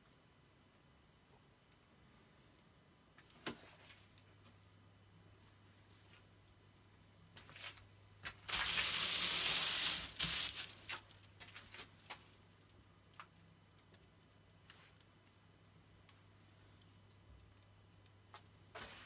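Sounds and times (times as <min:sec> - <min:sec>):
aluminium foil crinkling: 0:08.4 - 0:14.1.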